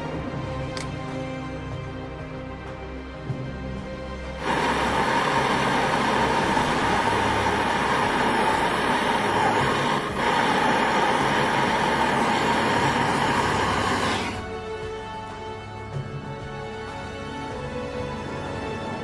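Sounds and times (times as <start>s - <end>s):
gas torch flame hissing: 4.4s - 14.5s.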